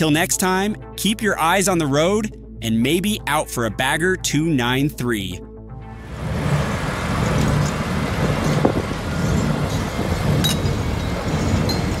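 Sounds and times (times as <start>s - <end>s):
heavy machinery rumble: 6.0s - 12.0s.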